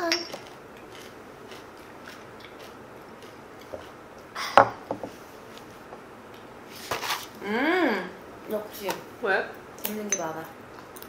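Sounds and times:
snacks crunching: 0.3s - 4.3s.

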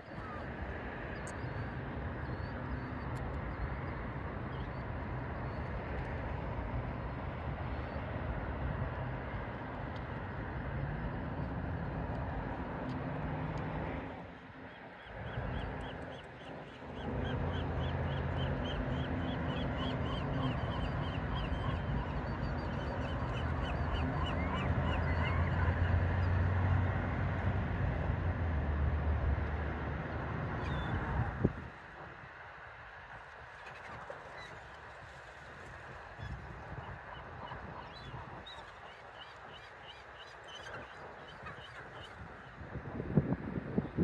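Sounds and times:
distant traffic rumble: 0.2s - 33.2s.

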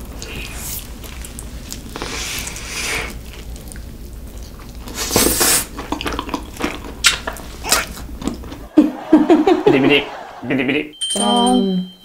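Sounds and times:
biting and wet chewing: 0.0s - 8.7s.

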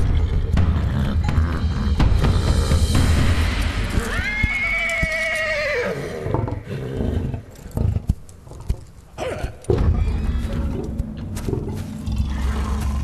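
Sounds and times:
horse neighing: 4.0s - 8.0s.

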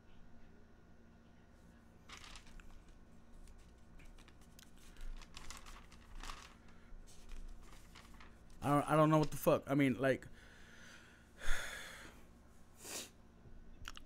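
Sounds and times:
paper rustling: 2.0s - 9.6s.

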